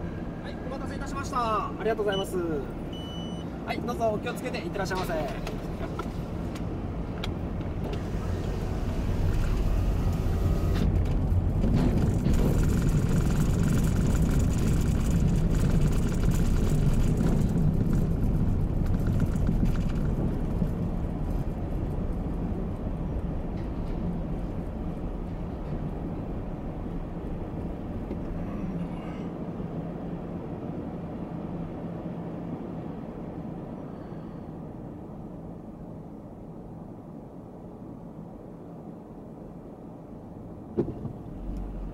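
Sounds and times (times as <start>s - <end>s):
low engine hum: 0.0s - 41.9s
car tyres rumbling over steel grating: 7.4s - 22.1s.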